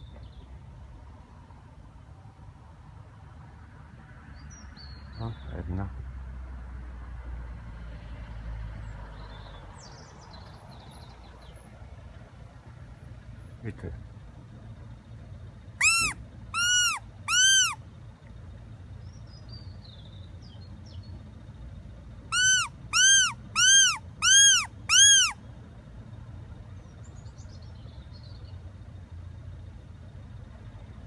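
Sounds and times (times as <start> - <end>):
predator whistle notes: 15.8 - 17.8, 22.4 - 25.4.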